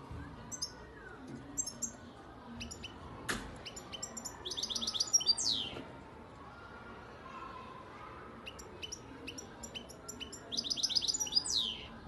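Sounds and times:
bird singing: 0.4 - 2.0, 3.6 - 5.8, 8.4 - 12.0.

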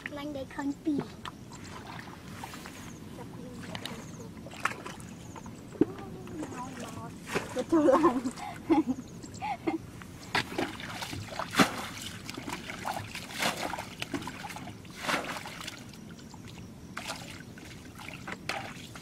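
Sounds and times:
people wading through muddy water: 0.9 - 19.0.

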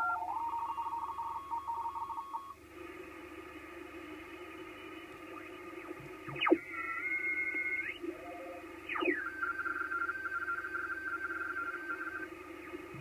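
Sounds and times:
radio band hiss: 0.0 - 13.0
rapid on-off pulsing tone: 0.0 - 13.0
high data-like tones: 4.8 - 13.0
whistling tone sweeping down: 8.9 - 12.3.

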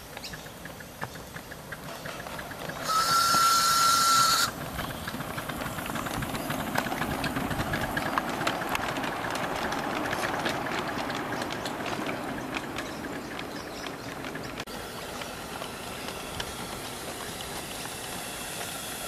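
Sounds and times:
locomotive exhaust beats: 0.0 - 19.0
wheels clicking on rails: 0.0 - 19.0
steam hissing: 1.8 - 8.1, 14.7 - 19.0
steam whistle: 2.8 - 4.6.

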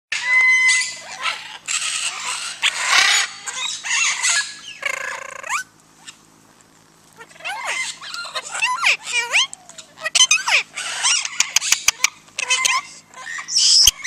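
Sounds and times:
parrots screeching and squawking: 0.1 - 6.2, 7.2 - 14.0
parrot whistles: 13.3 - 14.0.

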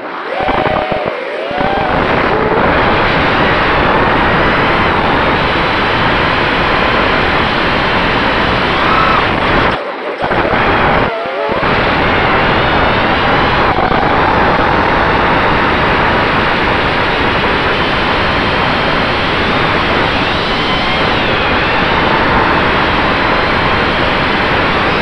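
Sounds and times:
wind noise: 0.0 - 25.0
quadcopter motors whirring: 18.2 - 24.2.

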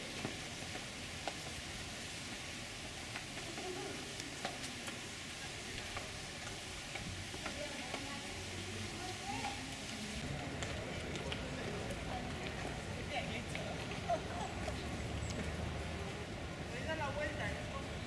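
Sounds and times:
outdoor background hiss: 0.0 - 18.0.

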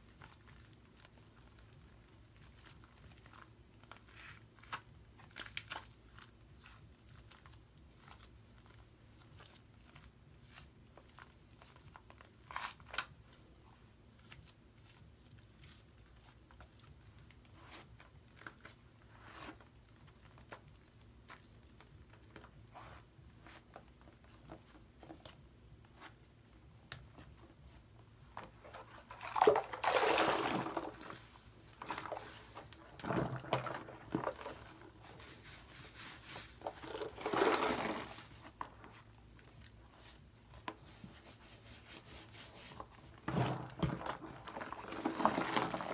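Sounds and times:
wet squelches: 28.4 - 38.2
hands squishing foam: 28.4 - 45.9.

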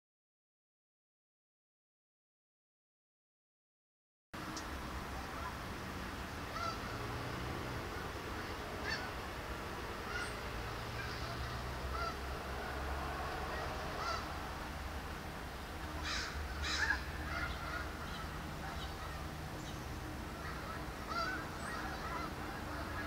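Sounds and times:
birds calling: 4.5 - 23.0.

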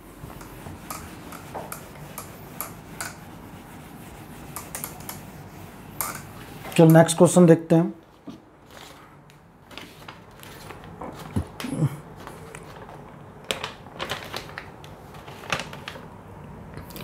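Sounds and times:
paper being handled: 8.0 - 16.1.

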